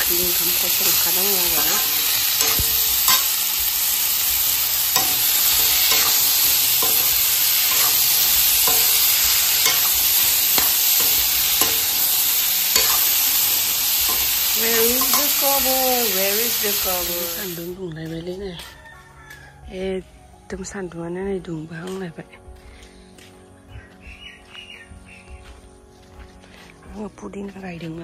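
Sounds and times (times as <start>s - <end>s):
food sizzling in oil: 0.0s - 17.8s
metal spatula scraping a pan: 0.6s - 16.2s.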